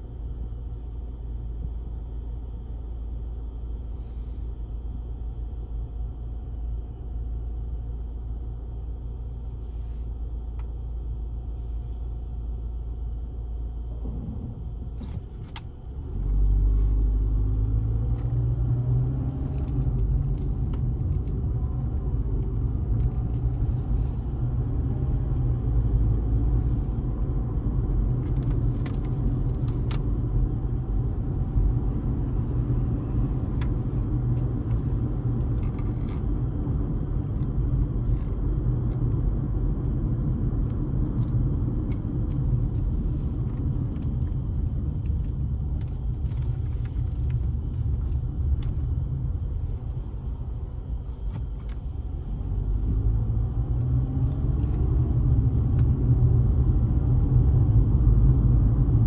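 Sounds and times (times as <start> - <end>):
car driving rumble: 0.0 - 59.0.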